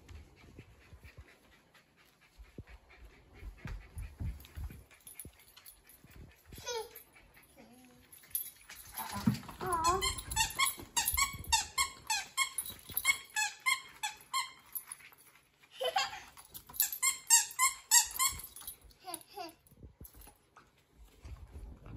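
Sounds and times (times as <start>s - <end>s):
squeaky dog toy squeaking: 9.3s - 14.7s, 16.8s - 18.7s.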